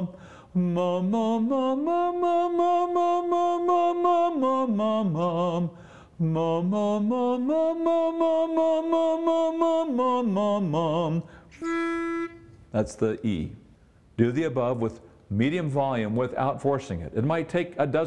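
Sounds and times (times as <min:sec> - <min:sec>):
man singing vocal drill: 0:00.0 - 0:12.6
pitch pipe note: 0:11.6 - 0:12.6.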